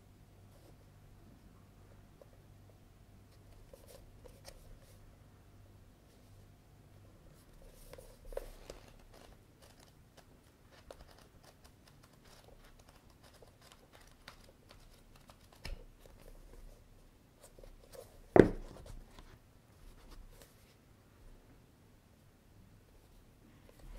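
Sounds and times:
book thump: 18.3 - 18.8.

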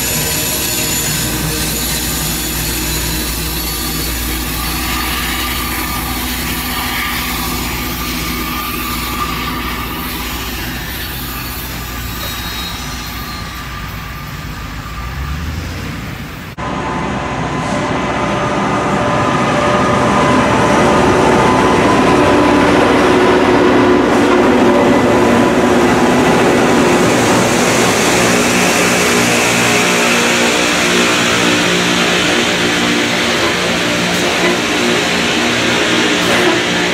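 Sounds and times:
grinding stones on rail: 0.0 - 14.4, 27.0 - 36.9
train engines running: 0.0 - 36.9.

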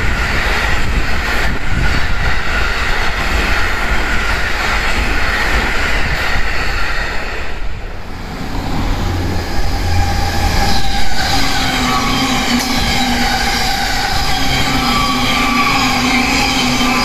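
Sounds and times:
electric train passing: 0.0 - 17.0
express train passing at speed: 0.0 - 17.0
train whine: 0.0 - 17.0.

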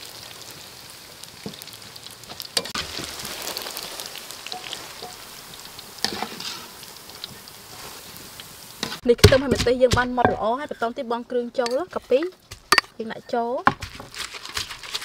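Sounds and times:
tofu sizzling in hot oil: 0.0 - 9.0.

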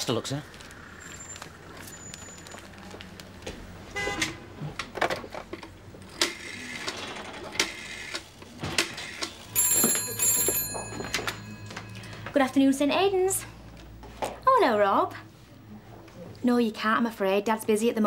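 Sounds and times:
telephone bell ringing: 9.0 - 12.3.

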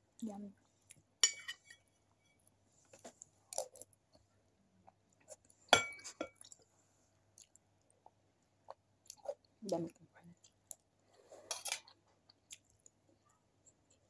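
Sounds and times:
metal spoon clinking on steel bowl: 1.2 - 1.9, 5.8 - 6.4
chewing: 7.3 - 14.0.

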